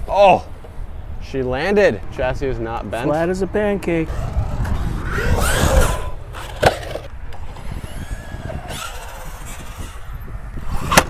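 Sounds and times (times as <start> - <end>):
rc car motor whining: 4.1 - 11.0
rc car landing slam: 5.0 - 10.0, 10.7 - 11.0.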